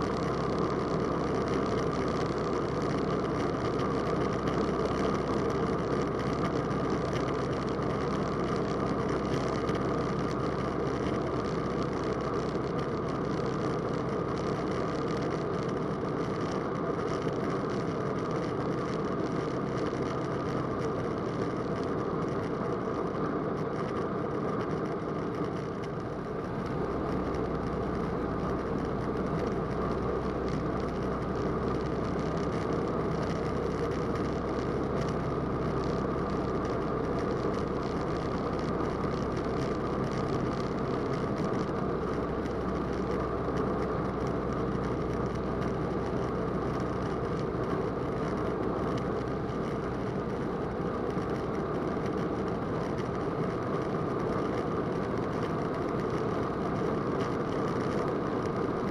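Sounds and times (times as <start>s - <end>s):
low hum: 24.4s - 53.4s.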